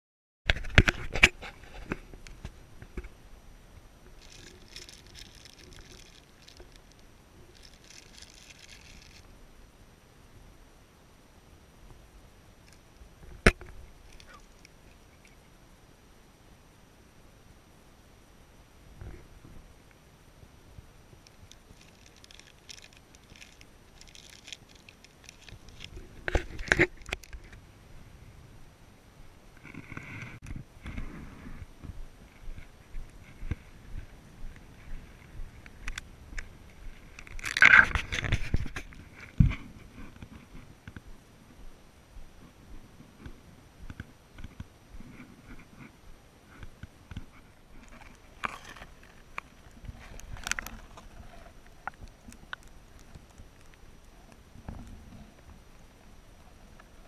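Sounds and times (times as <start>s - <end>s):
faint low rumble: 0.5s - 57.0s
plastic bag crinkling: 4.2s - 9.3s, 21.3s - 27.5s, 37.2s - 38.8s, 47.8s - 53.8s.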